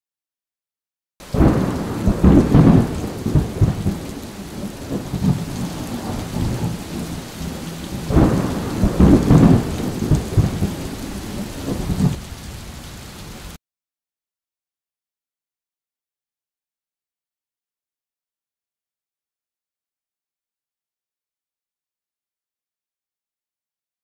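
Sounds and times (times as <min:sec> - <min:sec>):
steady rain: 0:01.2 - 0:13.6
thunder rolling: 0:01.3 - 0:12.2.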